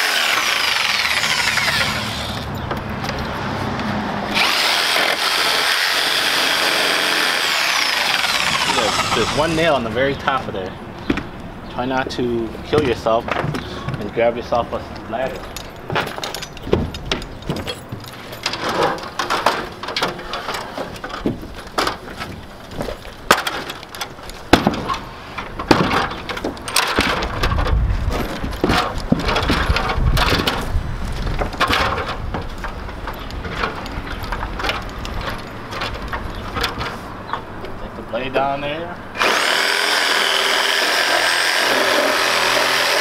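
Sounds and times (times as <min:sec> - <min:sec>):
stepladder knocks and clatters: 0:15.4 - 0:36.9.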